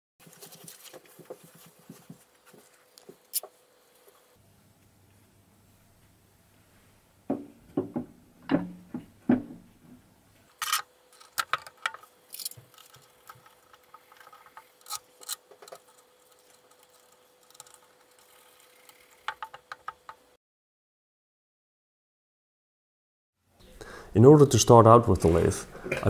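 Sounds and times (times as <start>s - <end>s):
dull thumps of metal part: 7.3s - 9.7s.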